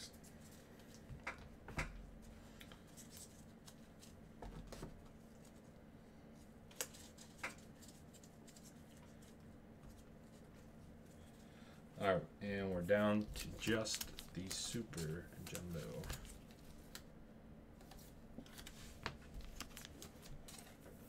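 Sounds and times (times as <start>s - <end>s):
low steady hum: 0.0s - 21.0s
trading card packaging clicks: 13.4s - 17.1s.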